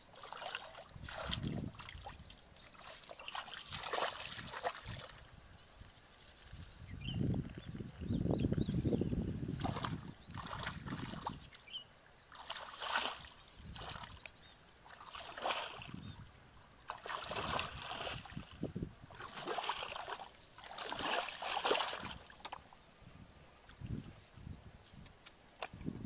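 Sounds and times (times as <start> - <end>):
muddy water sloshing and splashing: 0.0 - 5.3, 9.4 - 22.7.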